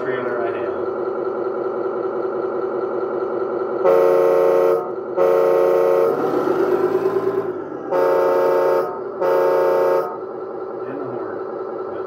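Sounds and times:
simulated diesel engine sound: 0:00.0 - 0:12.0
simulated air horn blasts: 0:03.8 - 0:06.5, 0:07.9 - 0:10.2.

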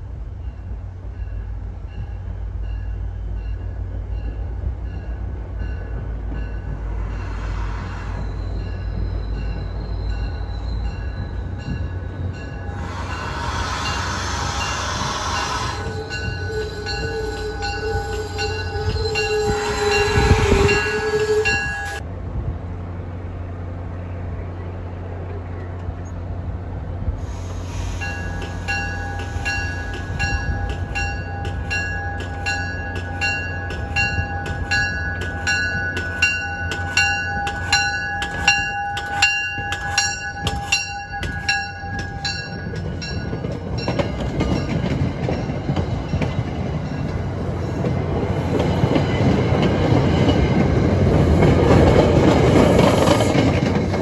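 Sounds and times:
train rolling rumble: 0:00.0 - 0:54.0
train warning bell ringing: 0:08.0 - 0:22.0, 0:28.0 - 0:48.0.

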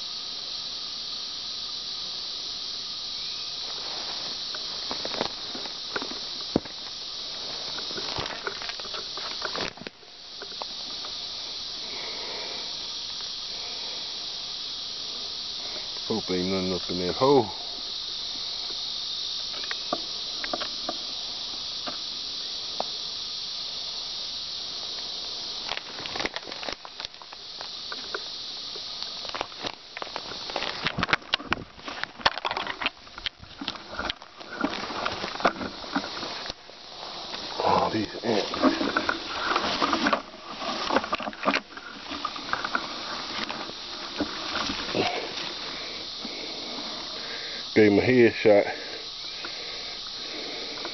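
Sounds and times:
insect chorus buzzing: 0:00.0 - 0:50.9
rustling through dry leaves and brush: 0:03.2 - 0:11.9, 0:24.8 - 0:47.3
stems snapping and scraping: 0:07.6 - 0:11.1, 0:25.6 - 0:28.2, 0:29.0 - 0:36.6.

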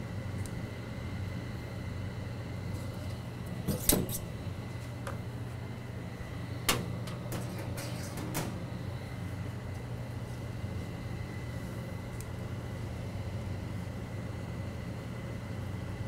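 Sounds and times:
furnace blower humming: 0:00.0 - 0:16.0
knocks against metal ductwork: 0:06.7 - 0:08.7.

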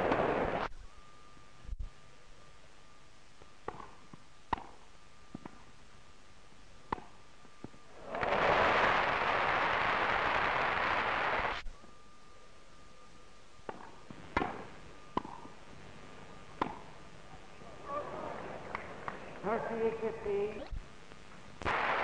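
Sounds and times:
faint steady tone: 0:00.0 - 0:08.2, 0:10.4 - 0:22.0
racket hitting ball: 0:03.7 - 0:04.8, 0:13.7 - 0:15.5, 0:16.6 - 0:16.9
crowd applauding: 0:08.0 - 0:11.6.

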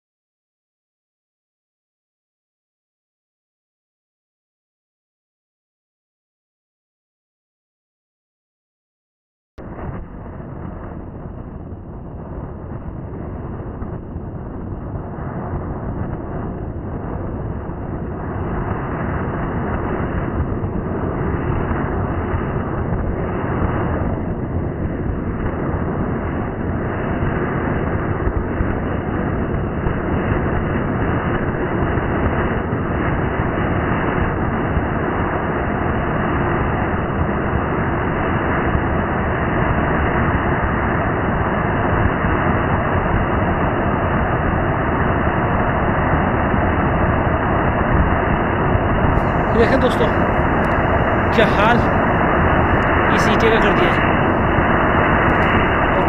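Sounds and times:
fountain firework hissing: 0:49.2 - 0:56.0.

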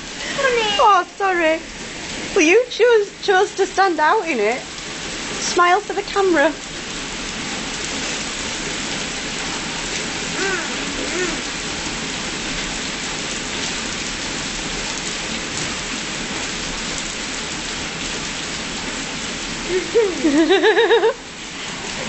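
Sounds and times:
heavy rain on hard surfaces: 0:00.0 - 0:22.0
faint voice: 0:10.4 - 0:11.5.

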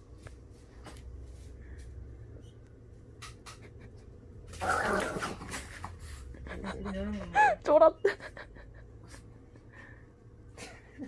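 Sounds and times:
dog snarling: 0:04.6 - 0:05.6.

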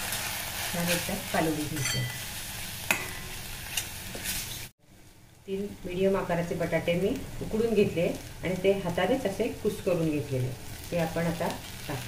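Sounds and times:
sauce sizzling in oil: 0:00.0 - 0:12.0
spoon scraping metal pan: 0:01.7 - 0:02.3.

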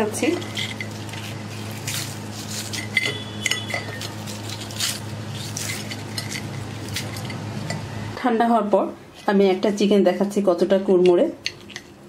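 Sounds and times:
steady low hum: 0:00.0 - 0:12.0
fried chicken crust crackling: 0:00.9 - 0:02.9, 0:04.0 - 0:07.1
metal clinking on a plate: 0:02.7 - 0:04.1.

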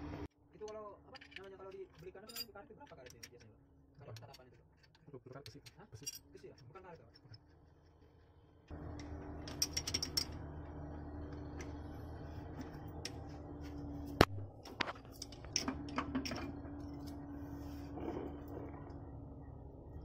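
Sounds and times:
steady mechanical hum: 0:00.0 - 0:20.0
hand tools clicking and ratcheting: 0:09.5 - 0:10.4.

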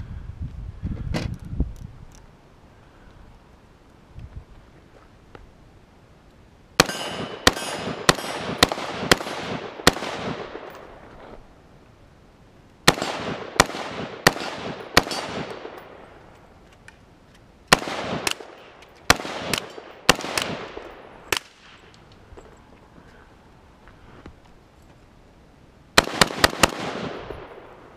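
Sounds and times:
gunshots: 0:06.8 - 0:10.8, 0:12.9 - 0:16.0, 0:17.7 - 0:21.8, 0:26.0 - 0:27.8
gunshot echo rolling: 0:06.8 - 0:11.3, 0:12.9 - 0:16.2.

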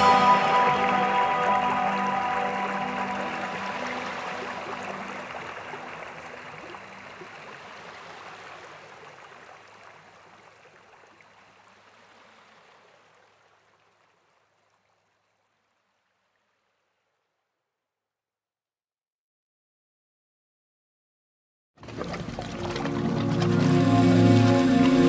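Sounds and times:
hiss-like soundtrack wash: 0:00.0 - 0:07.2, 0:23.1 - 0:25.0.

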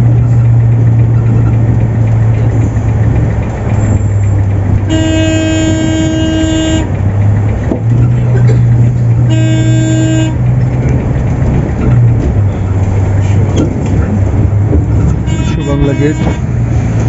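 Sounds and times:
diesel bus engine humming: 0:00.0 - 0:17.0
bus horn blasts: 0:04.8 - 0:07.1, 0:08.0 - 0:10.6, 0:15.0 - 0:16.7.

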